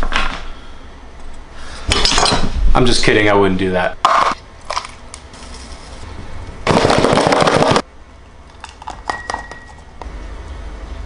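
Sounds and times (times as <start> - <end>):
glass clinking: 9.0 - 9.9.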